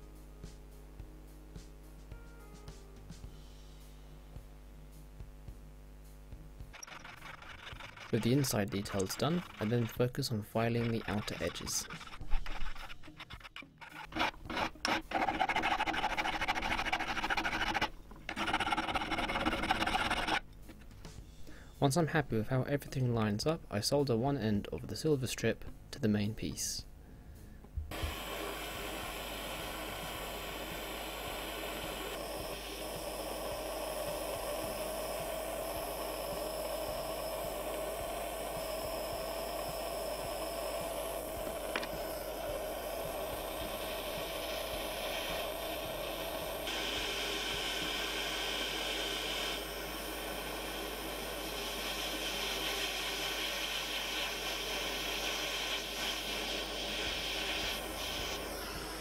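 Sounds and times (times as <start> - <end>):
gas torch flame hissing: 6.8 - 13.1, 27.9 - 59.0
steady tone: 27.9 - 59.0.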